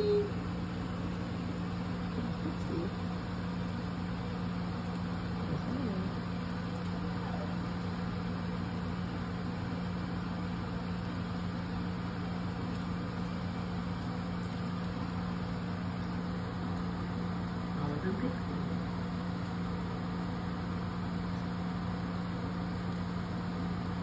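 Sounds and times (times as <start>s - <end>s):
appliance motor humming: 0.0s - 24.0s.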